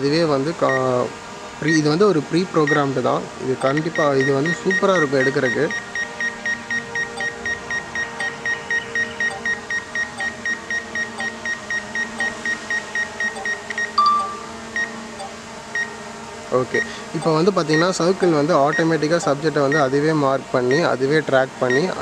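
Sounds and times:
rapid short electronic beeps: 0:03.6 - 0:15.9
short single tone: 0:13.4 - 0:14.9.

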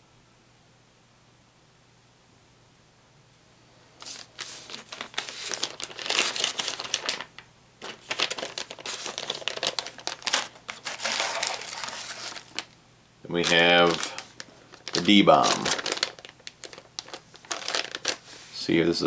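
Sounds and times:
plastic bag crinkling: 0:04.0 - 0:18.8.

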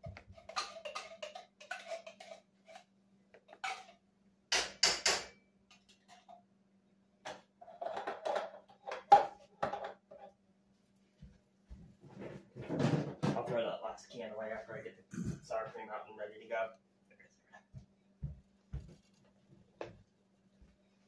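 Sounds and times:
metal utensil scraping cans: 0:00.2 - 0:04.0.

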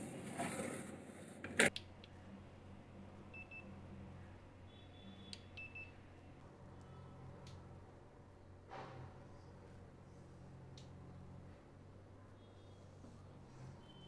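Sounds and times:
thermometer beeps: 0:03.3 - 0:03.8, 0:04.7 - 0:06.0.

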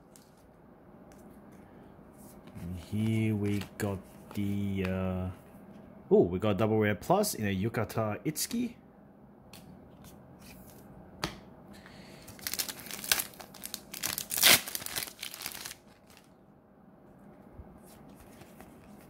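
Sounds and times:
plastic wrapper tearing and crinkling: 0:12.3 - 0:16.3.

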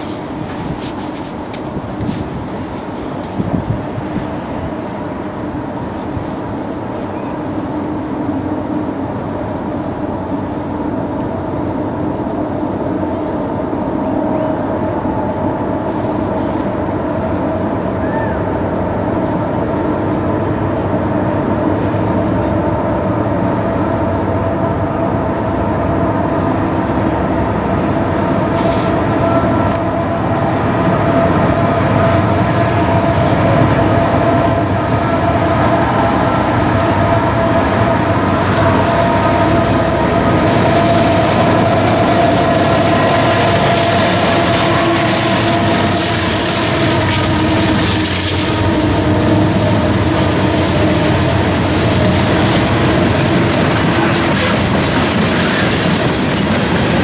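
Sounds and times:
diesel locomotive engine drone: 0:00.0 - 0:57.0
steel wheels hissing on rails: 0:00.0 - 0:57.0.

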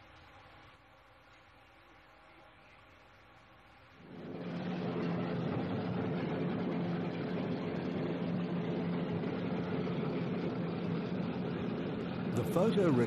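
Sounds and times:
low piston engine drone: 0:04.0 - 0:13.0.

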